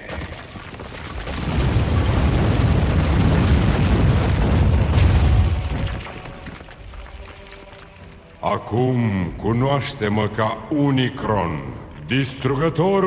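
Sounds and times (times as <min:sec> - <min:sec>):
rock crashing and rumbling: 0:00.0 - 0:08.4.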